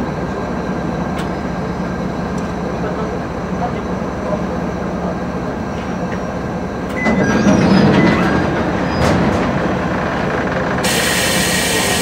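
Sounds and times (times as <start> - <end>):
diesel railcar engine humming: 0.0 - 12.0
air hissing: 10.8 - 12.0.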